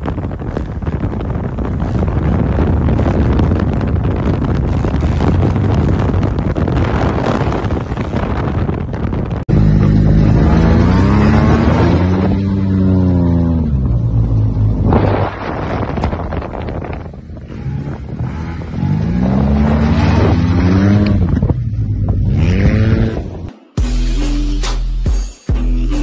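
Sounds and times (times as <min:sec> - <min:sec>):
scooter engine revving: 0:09.5 - 0:16.1, 0:17.4 - 0:23.5.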